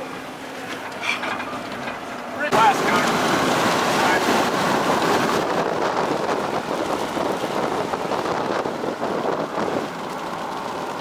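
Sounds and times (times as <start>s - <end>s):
vehicle road noise: 0.0s - 11.0s
wind buffeting microphone: 2.5s - 11.0s.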